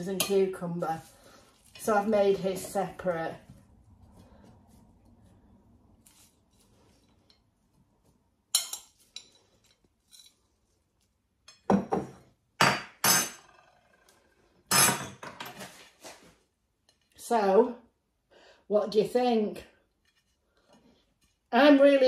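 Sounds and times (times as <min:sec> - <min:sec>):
metal spoon clinking on ceramic plate: 0:08.5 - 0:09.4.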